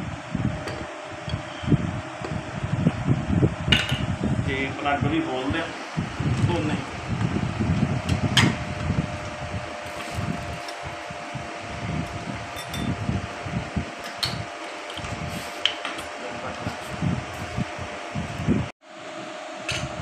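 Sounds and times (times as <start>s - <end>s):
electric fan whining: 0.0s - 20.0s.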